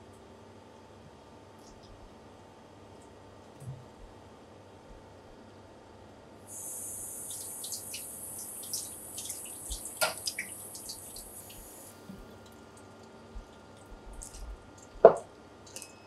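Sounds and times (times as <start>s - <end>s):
water splashes and drips: 6.5s - 15.0s
tap water running: 6.5s - 15.2s.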